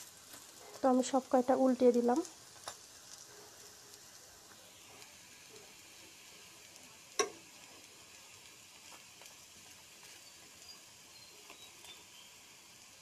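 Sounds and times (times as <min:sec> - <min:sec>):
oil sizzling in wok: 0:00.0 - 0:13.0
metal spoon clinking on pan: 0:07.2 - 0:07.4.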